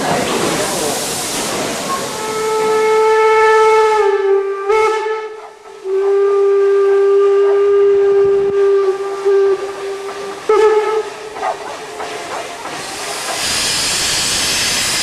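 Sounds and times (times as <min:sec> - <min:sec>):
loud steam hiss: 0:00.0 - 0:15.0
steam locomotive whistle blasts: 0:02.1 - 0:11.3, 0:13.4 - 0:15.0.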